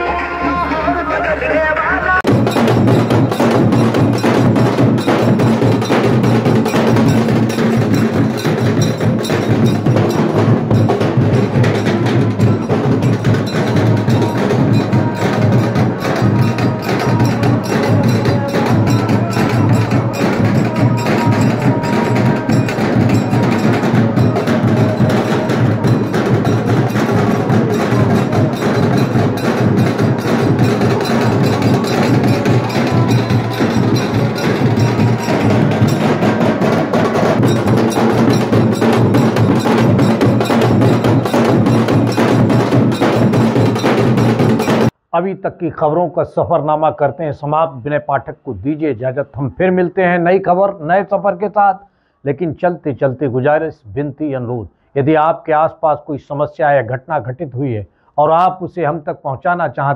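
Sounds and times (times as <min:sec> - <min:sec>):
fast percussion music: 0:00.0 - 0:45.0.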